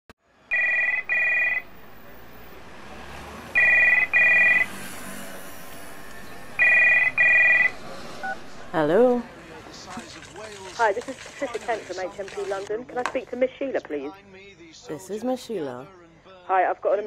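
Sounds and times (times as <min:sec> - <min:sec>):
telephone double ring: 0:00.5 - 0:01.6, 0:06.6 - 0:07.7.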